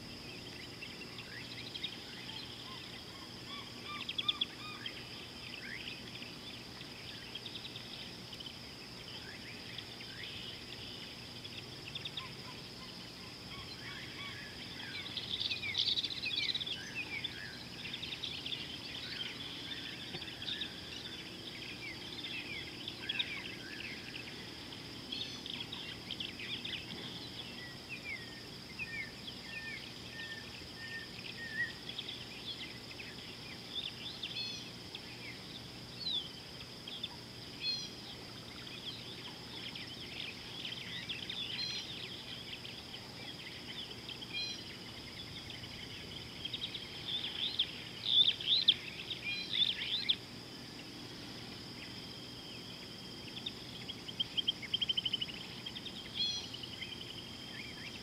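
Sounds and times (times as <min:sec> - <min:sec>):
birds chirping and calling: 0:09.1 - 0:35.4.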